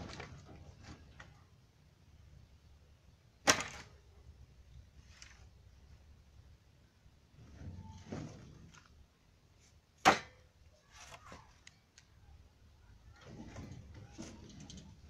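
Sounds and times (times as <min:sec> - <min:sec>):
sticks clattering and rustling: 0:00.0 - 0:01.6, 0:03.4 - 0:04.1, 0:04.9 - 0:05.6, 0:09.6 - 0:12.1, 0:13.1 - 0:15.0.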